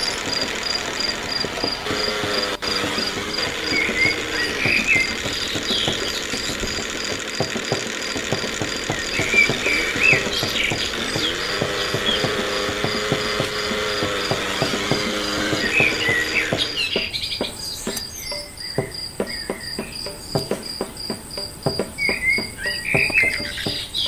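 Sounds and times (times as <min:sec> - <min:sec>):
crickets chirping: 0:00.0 - 0:24.0
pestle knocking in stone mortar: 0:00.0 - 0:24.0.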